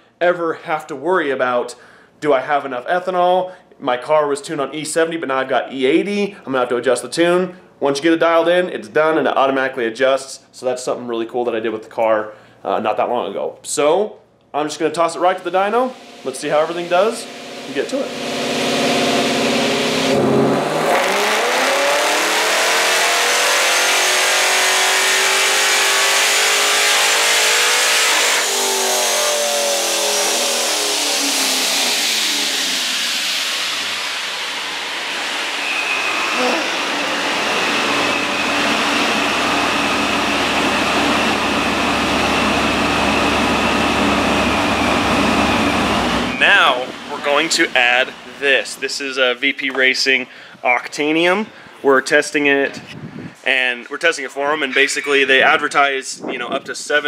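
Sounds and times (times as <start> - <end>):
high supercharger whine: 15.0 - 49.4
car engine revving: 15.4 - 49.0.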